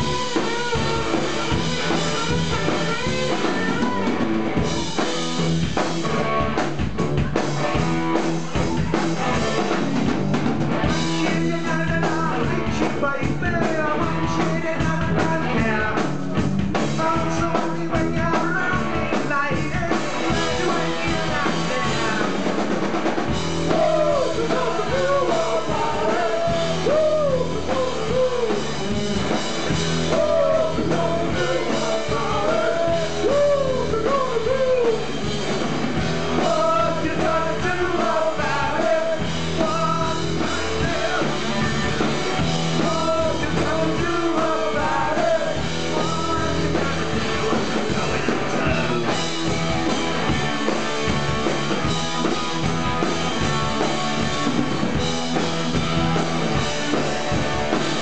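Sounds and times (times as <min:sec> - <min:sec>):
punk rock band playing live: 0:00.0 - 0:58.0
person singing: 0:23.6 - 0:28.8, 0:30.0 - 0:35.1, 0:36.4 - 0:42.0, 0:42.7 - 0:49.1.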